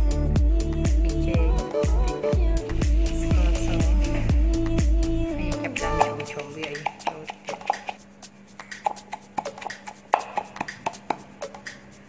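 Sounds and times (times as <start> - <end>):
pestle pounding in wooden mortar: 6.0 - 8.0, 8.8 - 11.7.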